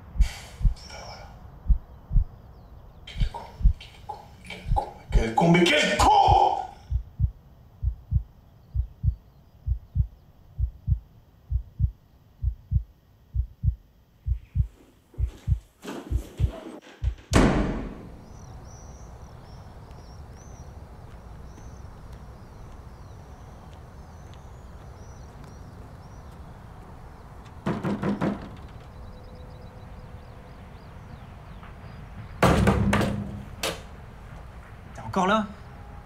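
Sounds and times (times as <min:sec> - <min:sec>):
heartbeat-like thumps: 0:00.1 - 0:00.8, 0:01.6 - 0:02.4, 0:03.2 - 0:03.8, 0:04.6 - 0:05.3, 0:06.2 - 0:17.3
loud thud: 0:16.1 - 0:18.4, 0:32.4 - 0:33.4.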